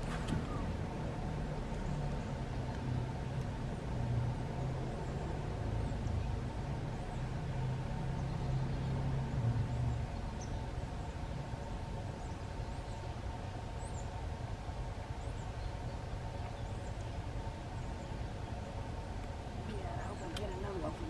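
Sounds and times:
low engine hum: 0:00.0 - 0:21.0
faint high bird chirps: 0:00.4 - 0:00.8.

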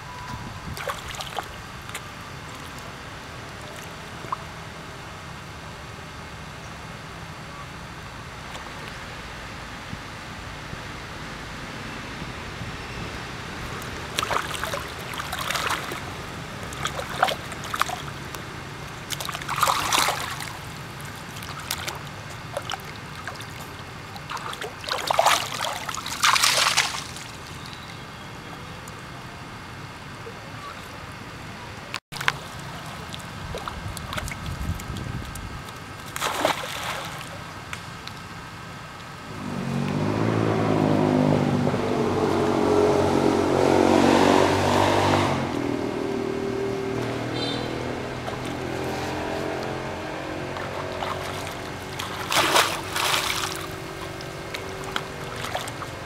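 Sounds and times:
vehicle engine humming: 0:00.0 - 0:36.2, 0:37.2 - 0:56.0
monkeys splashing in water: 0:13.7 - 0:27.9, 0:35.7 - 0:37.6, 0:47.3 - 0:56.0.

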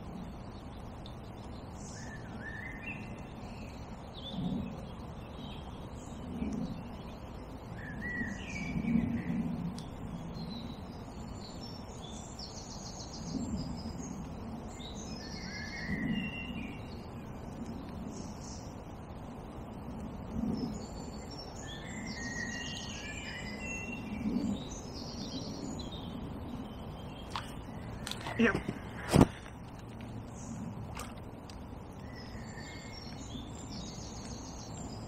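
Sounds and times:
small birds singing: 0:00.0 - 0:35.0
steady low outdoor hum: 0:00.0 - 0:35.0
soft low bumps: 0:27.2 - 0:31.9.

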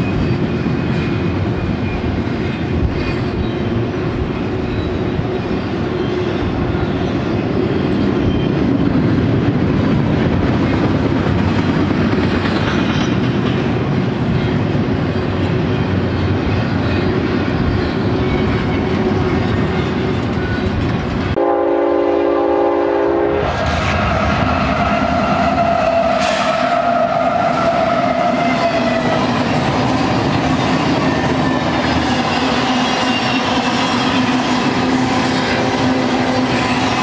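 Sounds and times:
freight train wheels on rails: 0:00.0 - 0:37.0
diesel locomotive horn: 0:21.4 - 0:29.2.

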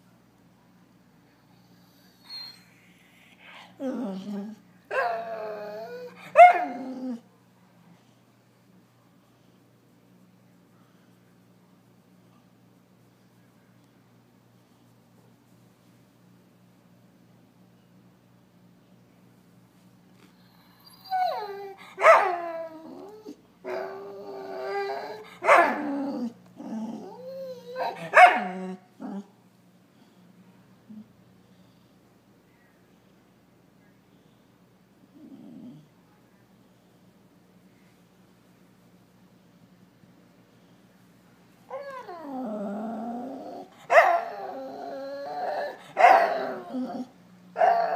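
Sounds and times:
dog whining: 0:02.0 - 0:03.2, 0:03.8 - 0:07.2, 0:20.4 - 0:29.2, 0:41.7 - 0:47.9.

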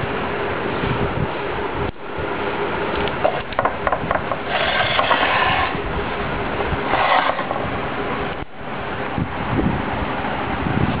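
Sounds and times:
motor-driven pulley whirring: 0:03.0 - 0:06.0, 0:06.7 - 0:08.0.

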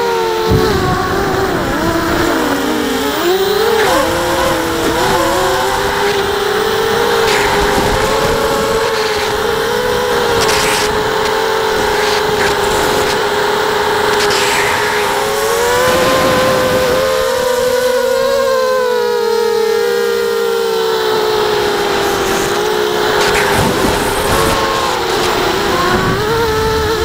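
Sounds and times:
quadcopter motors whining: 0:00.0 - 0:27.0.

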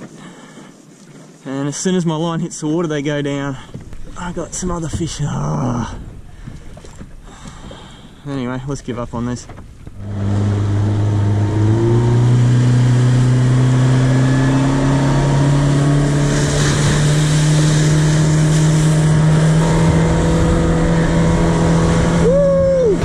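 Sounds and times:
boat motor running: 0:03.6 - 0:23.0.

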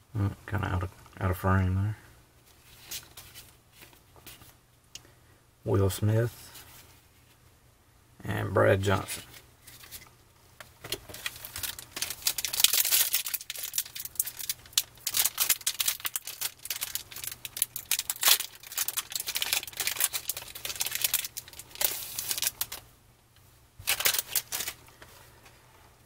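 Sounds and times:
foil wrapper crinkling and tearing: 0:10.9 - 0:22.8, 0:23.8 - 0:25.0.

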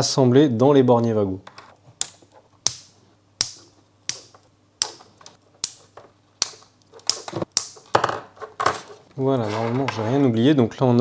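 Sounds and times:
wire connectors clicking shut: 0:03.4 - 0:07.9
wires rustling: 0:03.6 - 0:10.2.

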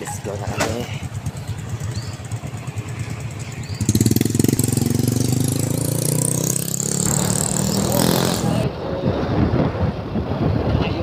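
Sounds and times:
motorcycle engine idling: 0:00.0 - 0:06.2
loud engine sound: 0:00.3 - 0:09.8.

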